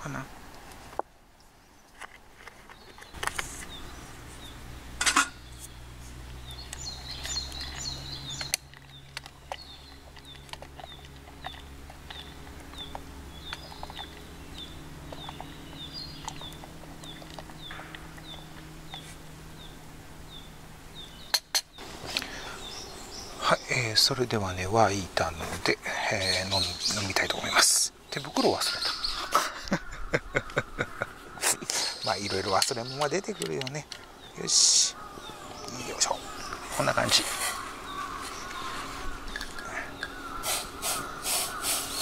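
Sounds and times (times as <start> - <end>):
low steady hum: 0.0 - 42.0
bird short high call: 37.2 - 42.0.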